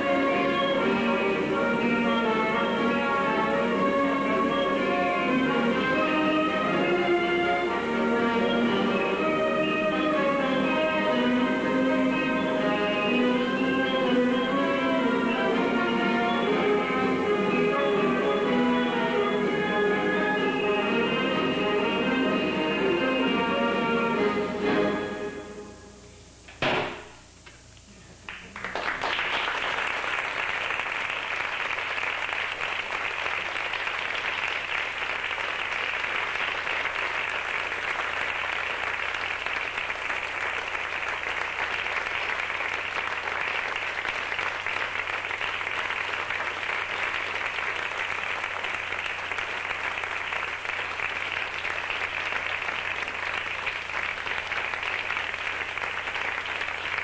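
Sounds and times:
audience applause: 28.3s - 57.0s.

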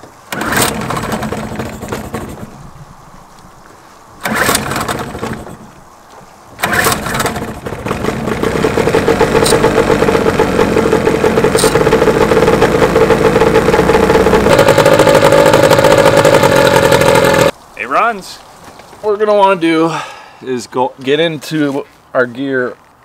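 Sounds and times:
outboard motor pull-start: 0.0s - 2.6s, 4.2s - 5.7s, 6.6s - 17.5s
outboard motor running: 0.3s - 2.6s, 4.2s - 5.8s, 6.6s - 17.5s.

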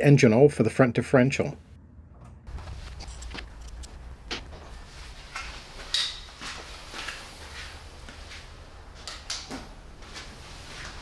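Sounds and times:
footsteps on concrete floor: 4.2s - 11.0s.

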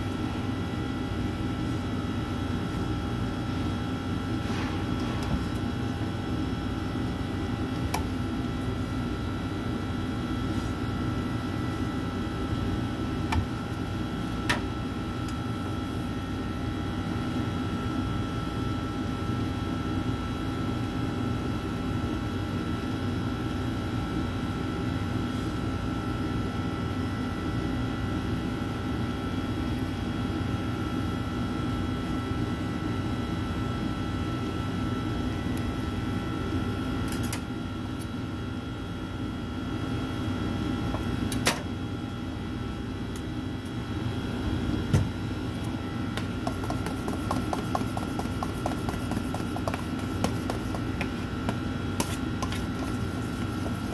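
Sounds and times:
bakery equipment humming: 0.0s - 53.9s.

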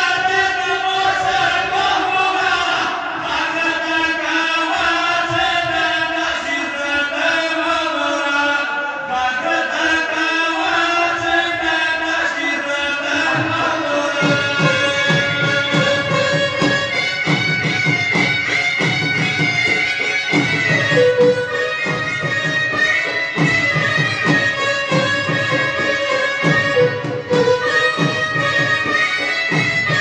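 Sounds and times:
drum beating quickly: 13.2s - 30.0s.

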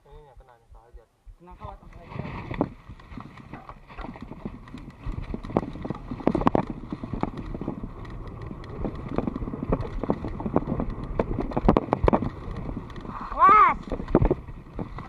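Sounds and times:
bike rattling over dirt trail: 1.6s - 15.0s
low rumble: 2.0s - 15.0s.

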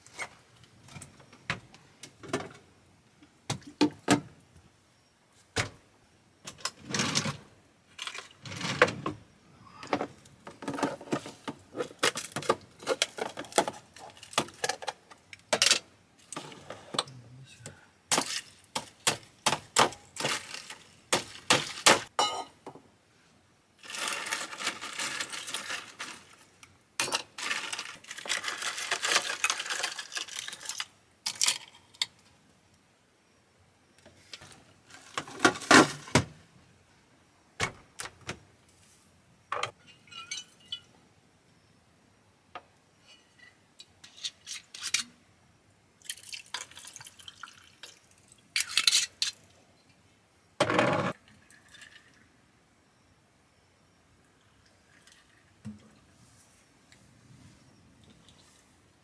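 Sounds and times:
small hard objects clattering: 10.0s - 16.6s, 18.1s - 22.4s, 23.8s - 32.2s, 46.0s - 49.5s.

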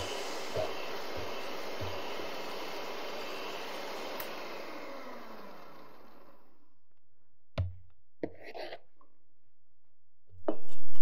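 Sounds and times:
electric hand mixer winding down: 0.0s - 6.7s.

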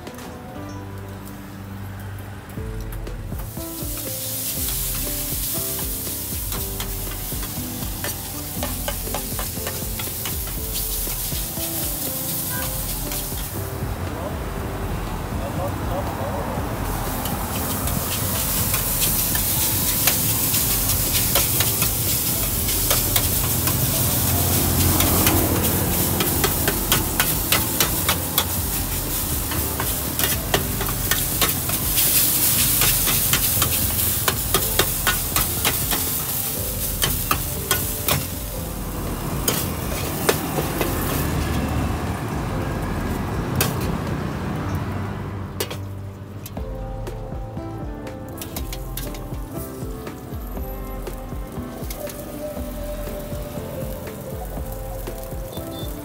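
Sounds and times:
food sizzling: 0.6s - 47.3s, 48.0s - 56.0s
metal spatula scraping a wok: 17.6s - 38.3s.

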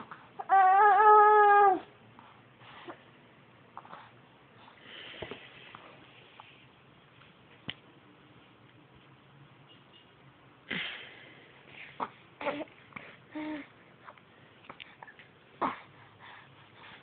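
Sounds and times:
baby breathing and cooing: 11.7s - 17.0s.

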